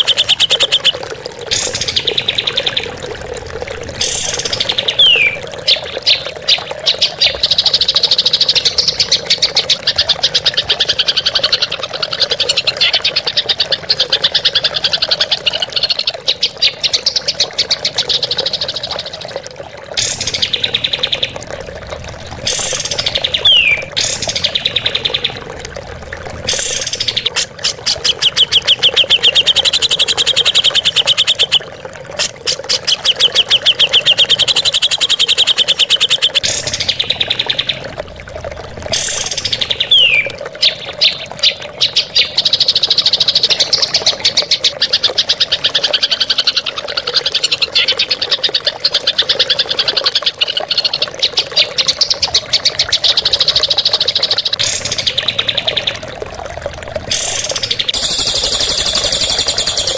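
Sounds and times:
songbirds rattling trills: 0.0 - 46.8, 50.4 - 59.9
downward-sweeping bird whistle: 4.0 - 6.6, 22.5 - 24.2, 57.1 - 59.9.

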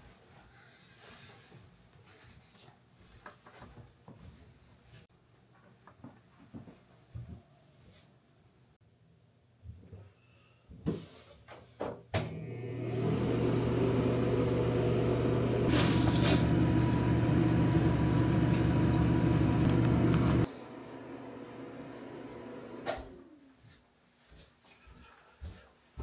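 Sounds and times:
exhaust fan humming: 12.4 - 23.5.

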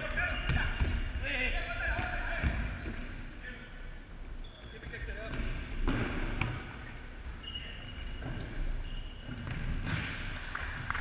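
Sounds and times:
shoes squeaking on wooden court: 0.0 - 3.3, 4.2 - 10.4.

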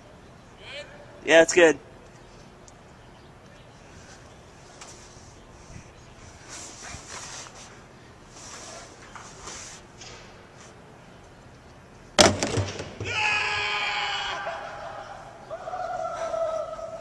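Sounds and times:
ball landing with a knock: 12.2 - 13.2
person shouting: 13.0 - 14.9.

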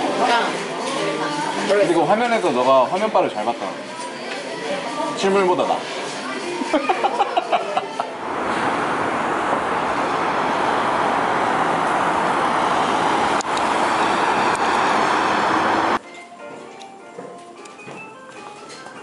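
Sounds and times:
road traffic noise: 7.1 - 16.0.

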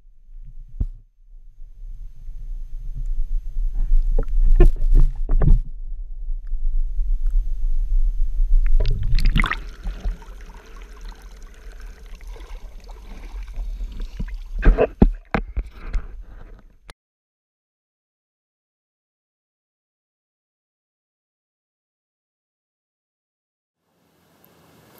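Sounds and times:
low rumble on microphone: 0.0 - 16.9
water sloshing: 8.6 - 16.8.

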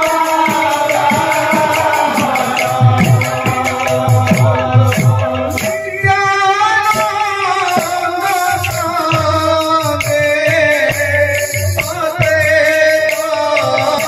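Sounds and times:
man singing through a microphone: 0.0 - 14.0.

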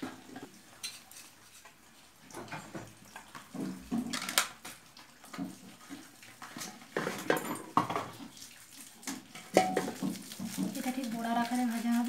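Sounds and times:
metal utensils and bowls clinking: 0.3 - 2.8, 6.5 - 8.2, 9.1 - 12.0.

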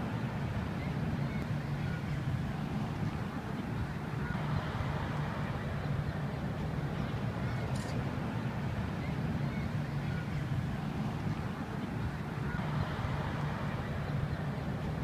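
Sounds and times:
distant engine drone: 0.0 - 15.0
faint click: 7.7 - 8.0.

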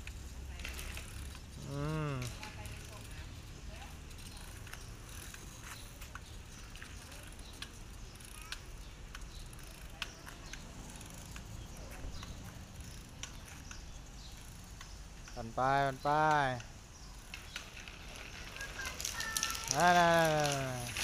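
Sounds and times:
bicycle rolling over rough concrete: 0.0 - 21.0
light clicks and ticks: 4.5 - 15.6.

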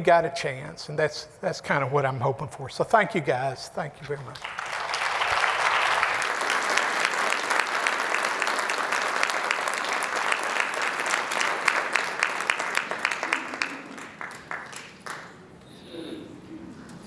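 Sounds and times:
audience applauding: 4.4 - 15.5.

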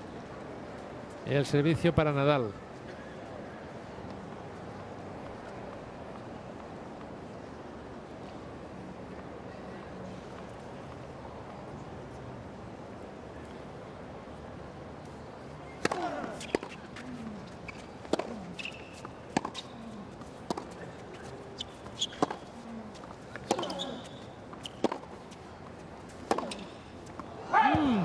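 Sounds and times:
racquet striking tennis ball: 15.7 - 25.2, 26.1 - 27.9.

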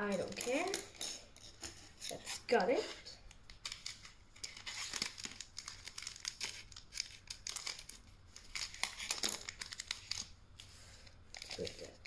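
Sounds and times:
foil wrapper crinkling: 3.5 - 10.4, 11.3 - 12.0.

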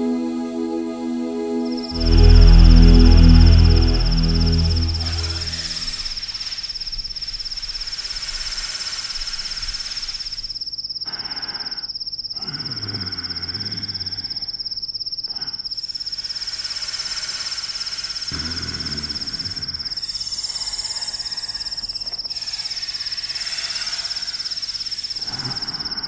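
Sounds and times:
faint low sound: 0.0 - 6.2
crickets trilling: 5.8 - 26.0.

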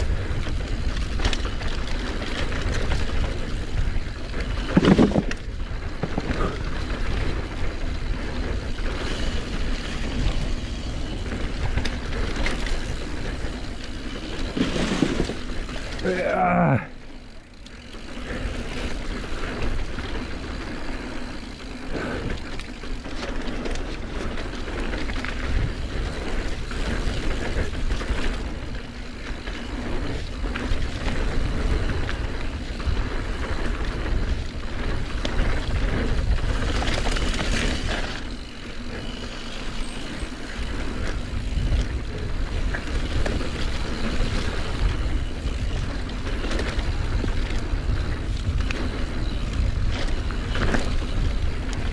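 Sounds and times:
bike rattling over bumps: 0.0 - 51.9
bike tyre rumble on dirt: 0.0 - 51.9
wind on microphone: 40.1 - 51.9.

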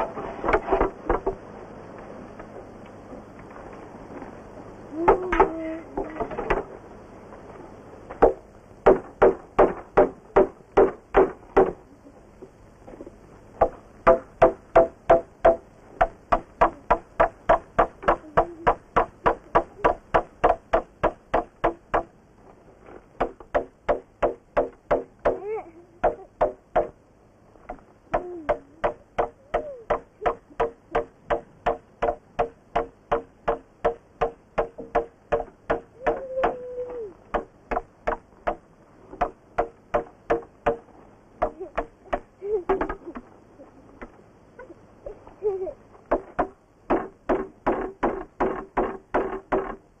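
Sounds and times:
rapid knocking on hollow object: 8.2 - 11.8, 13.6 - 22.1, 23.2 - 25.4, 26.0 - 27.0, 27.7 - 36.6, 37.3 - 38.6, 39.2 - 43.0, 46.1 - 49.8.

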